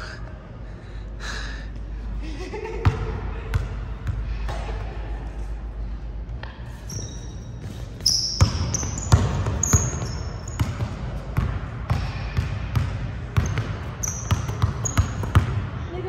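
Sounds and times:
sneaker squeaks: 6.6 - 11.1, 13.4 - 15.6
basketball dribbling: 8.0 - 15.8.

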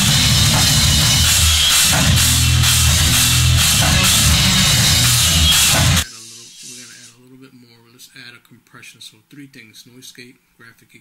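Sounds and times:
distorted guitars: 0.0 - 7.1
drums with crashing cymbals: 0.0 - 7.1.

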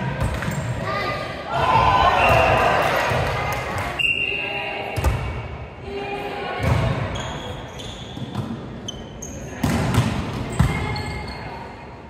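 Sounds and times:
sneakers squeaking on floor: 0.2 - 0.8, 6.6 - 11.8.

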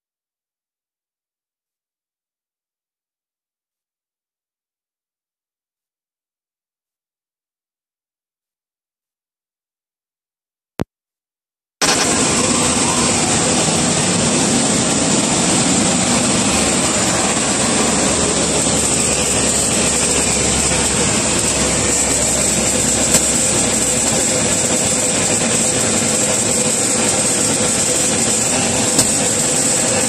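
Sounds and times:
aircraft machinery with high whine: 11.8 - 30.0
low hum: 11.8 - 30.0.

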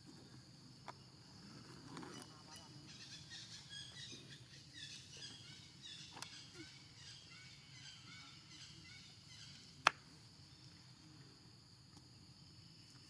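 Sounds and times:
small birds chirping: 0.8 - 11.0.

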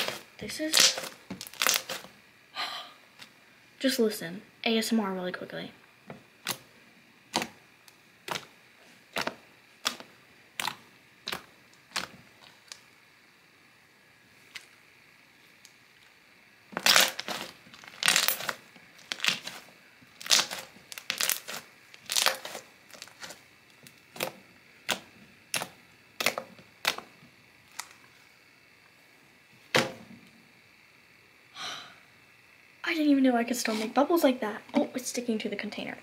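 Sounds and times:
slime crackling pops: 0.0 - 2.1, 9.1 - 12.8, 16.8 - 19.6, 20.2 - 23.3.

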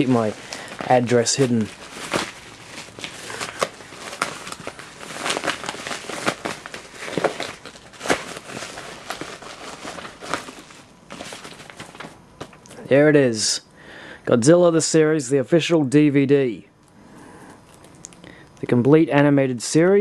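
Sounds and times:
padded paper mailer crinkling: 0.0 - 12.6.

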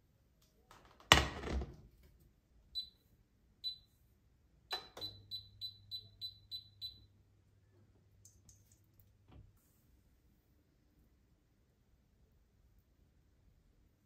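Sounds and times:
appliance beeping: 4.7 - 7.0.

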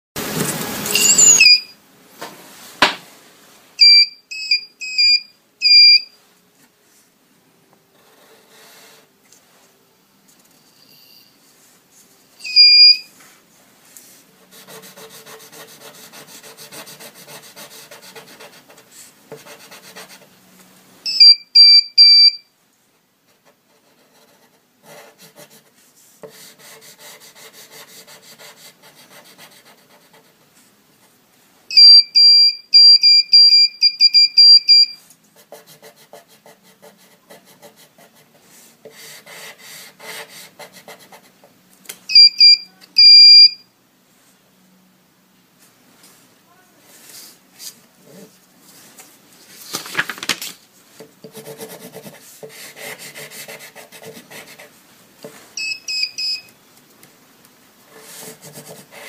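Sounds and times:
high electronic buzzer beeps: 0.8 - 1.8, 3.8 - 6.2, 12.4 - 13.1, 21.1 - 22.4, 31.7 - 35.0, 42.1 - 43.6, 55.6 - 56.5
pencil scratching on paper: 8.0 - 9.1, 14.4 - 20.3, 23.4 - 30.4, 35.4 - 41.4, 51.2 - 54.7, 57.9 - 59.0.

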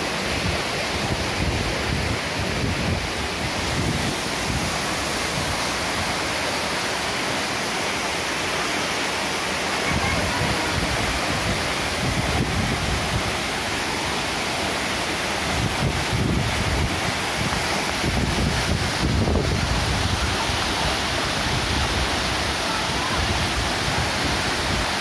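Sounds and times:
water cascading over rocks: 0.0 - 25.0
waterfall rushing: 0.0 - 25.0
wind buffeting microphone: 1.1 - 6.0, 9.9 - 13.6, 15.4 - 20.5.

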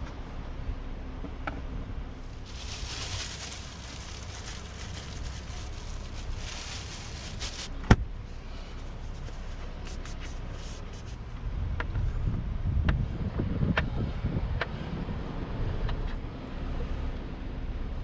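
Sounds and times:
low rumble: 1.7 - 8.4
plastic bag crinkling: 2.2 - 7.8.

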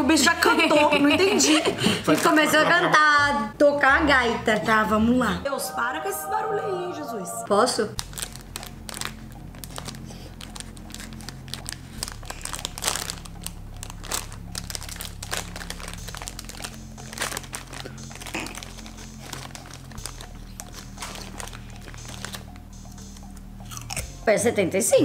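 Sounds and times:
plastic snack bag crinkling: 8.0 - 23.1.

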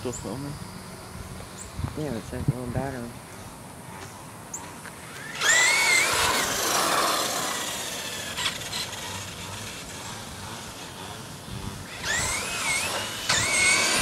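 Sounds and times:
tyre noise on asphalt: 3.3 - 14.0
radio-controlled truck motor whine: 3.4 - 14.0.

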